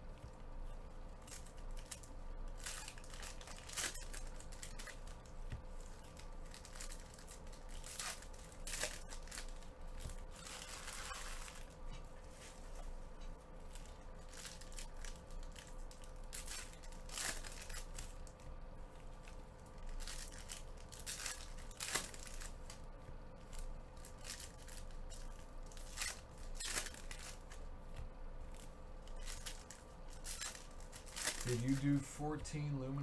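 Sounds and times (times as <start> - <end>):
faint steady hum: 0.0 - 33.0
foil packs tearing and crinkling: 1.3 - 5.2, 5.9 - 11.8, 13.8 - 18.4, 19.2 - 22.8, 23.5 - 27.6, 28.5 - 32.7.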